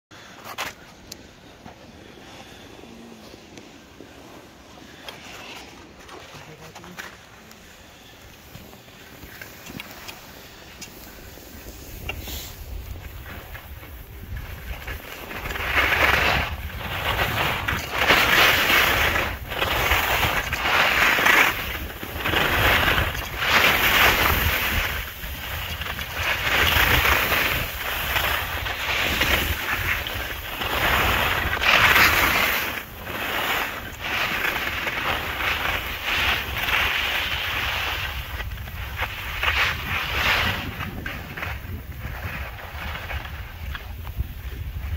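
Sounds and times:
skis scraping over packed snow: 0.2 - 44.9
wind rumble on microphone: 11.1 - 44.9.

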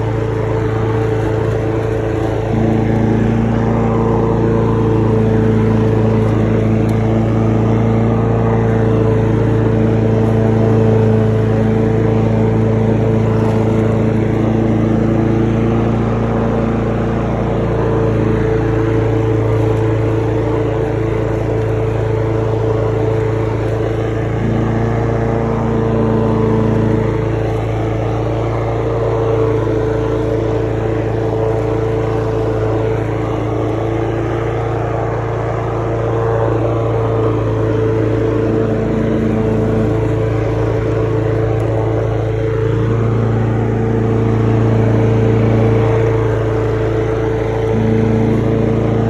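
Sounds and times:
lawn mower engine running: 0.0 - 49.0.

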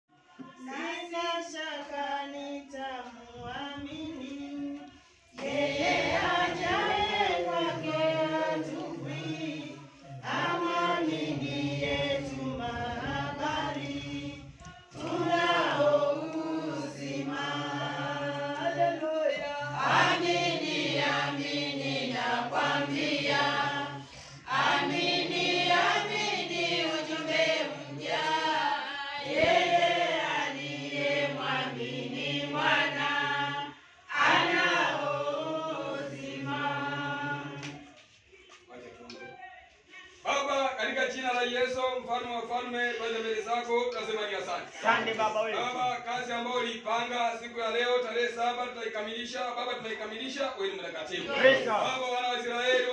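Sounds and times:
congregation singing: 0.1 - 38.8, 51.1 - 52.9.

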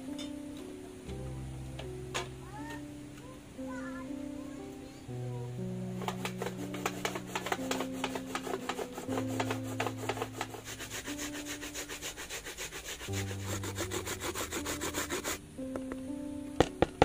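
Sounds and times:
coconut scraping on metal grater: 6.0 - 15.4.

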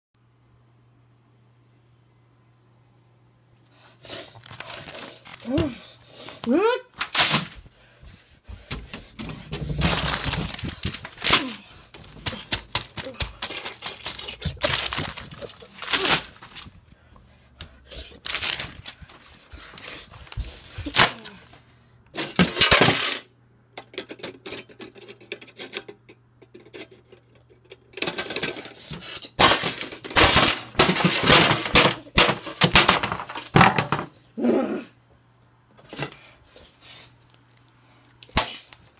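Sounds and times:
paper crumpling and tearing: 4.3 - 5.6, 9.7 - 16.8, 18.0 - 19.2.

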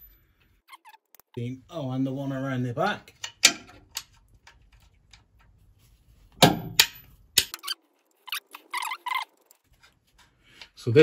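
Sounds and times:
spanner clinking on metal bolts: 3.1 - 4.6, 6.4 - 7.6.

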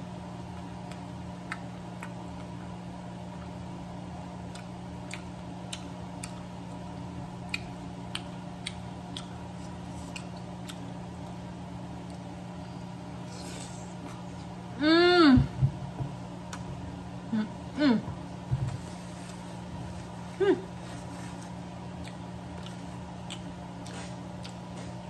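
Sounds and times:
steady low hum: 0.0 - 25.0
mouth clicks and smacks from chewing: 4.5 - 6.5, 7.4 - 11.3, 22.0 - 25.0.

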